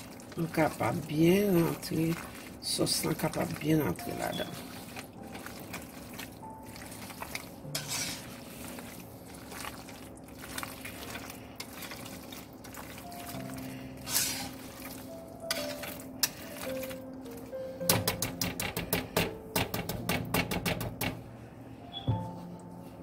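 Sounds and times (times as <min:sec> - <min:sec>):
wet stirring of pasta sauce: 0:00.0 - 0:19.1
spoon knocking and scraping pan: 0:07.2 - 0:08.4, 0:14.0 - 0:14.8, 0:15.5 - 0:17.0, 0:17.8 - 0:21.2.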